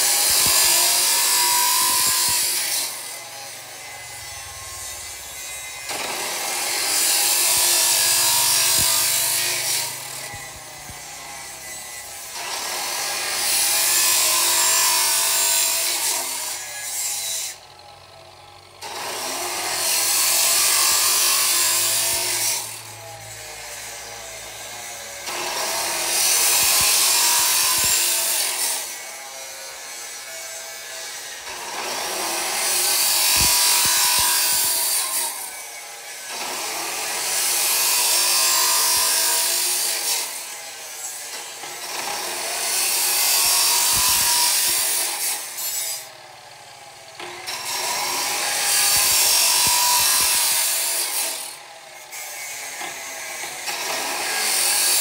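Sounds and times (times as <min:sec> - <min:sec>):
saw motor whine: 0:00.0 - 0:40.8
chop saw grinding through steel: 0:00.0 - 0:55.0.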